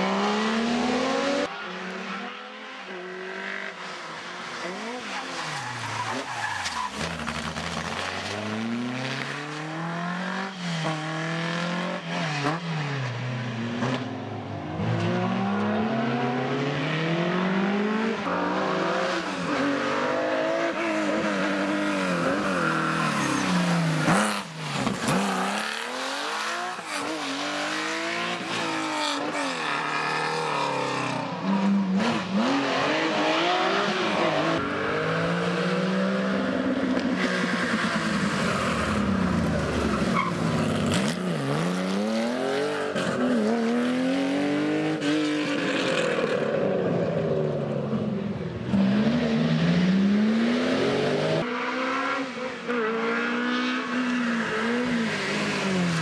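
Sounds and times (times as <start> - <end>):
rally car engines revving: 0.0 - 56.0.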